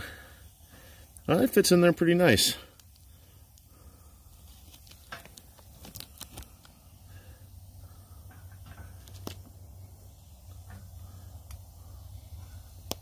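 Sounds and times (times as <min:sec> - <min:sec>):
soft clicks and rustles: 0:04.4 - 0:06.8, 0:08.3 - 0:09.6.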